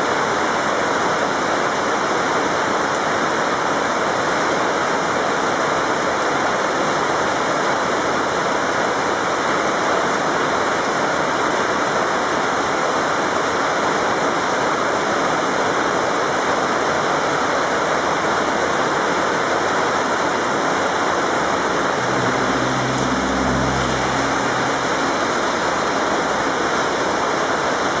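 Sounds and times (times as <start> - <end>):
heavy rain falling: 0.0 - 28.0
low hum: 21.3 - 27.5.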